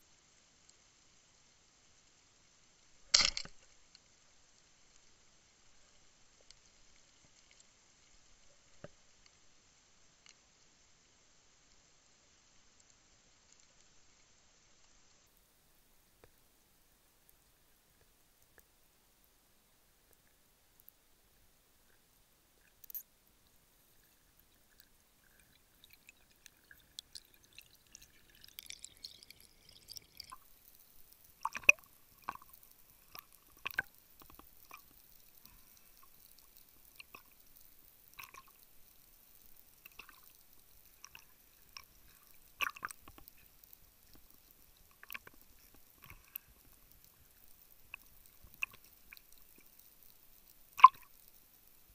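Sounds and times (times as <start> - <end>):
underwater clicks and knocks: 31.4 - 32.4.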